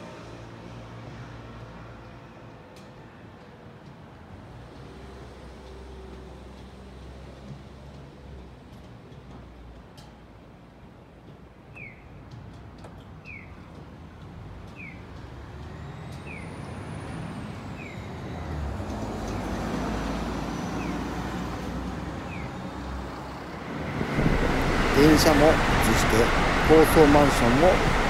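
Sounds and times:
electric train passing: 17.2s - 28.0s.

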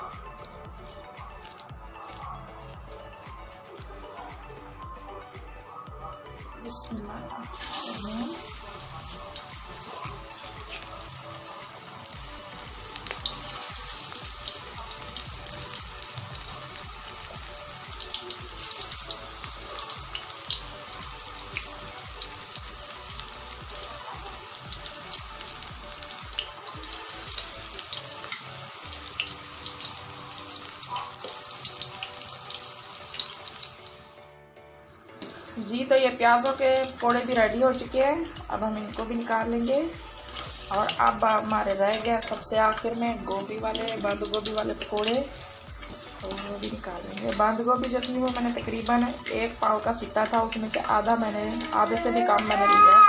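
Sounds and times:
fritters sizzling in hot oil: 7.5s - 34.2s, 34.8s - 53.0s.

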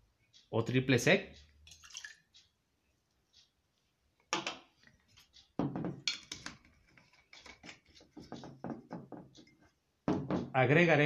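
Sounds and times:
metal tools knocking on wooden table: 5.6s - 6.8s, 7.4s - 10.6s.

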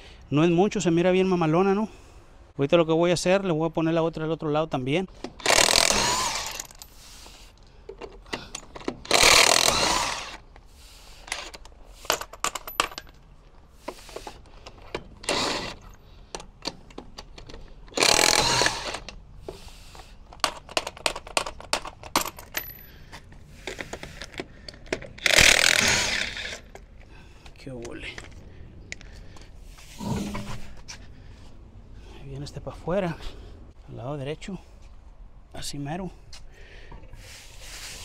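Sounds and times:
impact wrench bursts: 5.3s - 7.0s, 8.3s - 10.4s, 15.0s - 15.9s, 17.9s - 19.1s, 25.0s - 26.8s
lug nuts and tools clinking: 7.6s - 29.1s.

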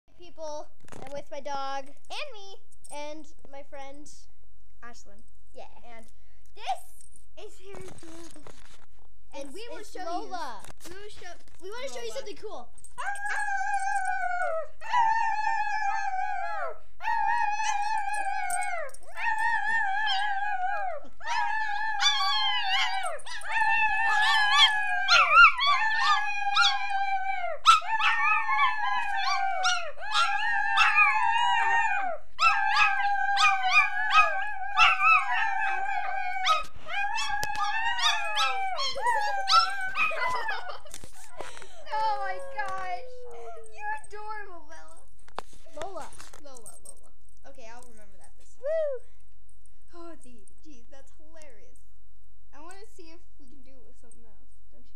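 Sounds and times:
children howling: 13.0s - 41.4s
dog howling: 13.0s - 41.5s.

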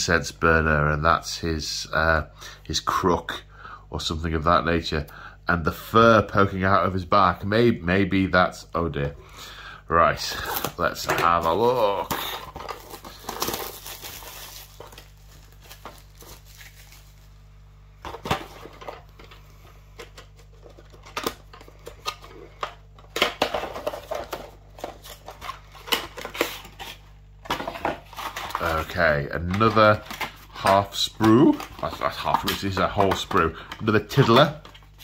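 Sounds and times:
low steady hum: 0.0s - 35.0s
packaging rustling: 10.2s - 17.4s, 18.0s - 35.0s.

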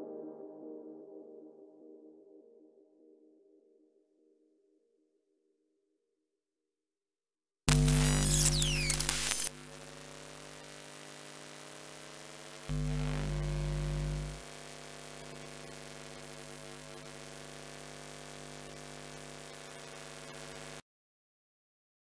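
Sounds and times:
electrical hum and buzz: 7.7s - 20.8s.

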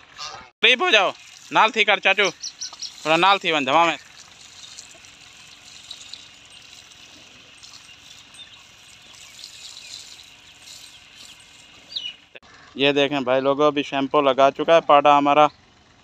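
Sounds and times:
hose water spraying and splashing: 0.6s - 12.4s.

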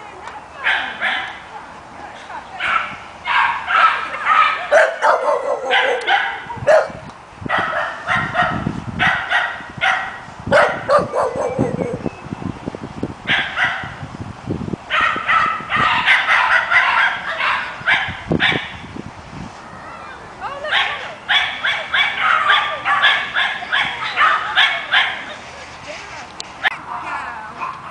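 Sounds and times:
small dog barking and yipping: 2.6s - 12.1s, 13.3s - 14.0s, 14.9s - 18.7s, 20.6s - 25.3s.

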